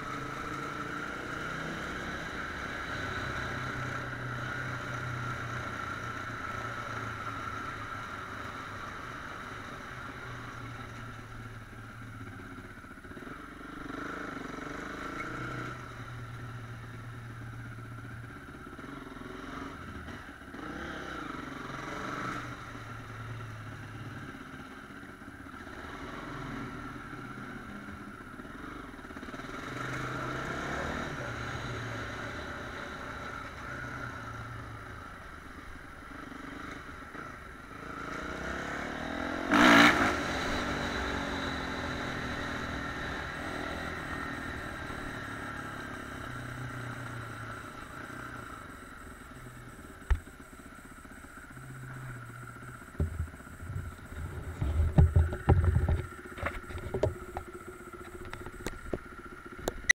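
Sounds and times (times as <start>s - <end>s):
vehicle running noise: 0.0s - 60.0s
knocks and thumps: 52.9s - 57.5s.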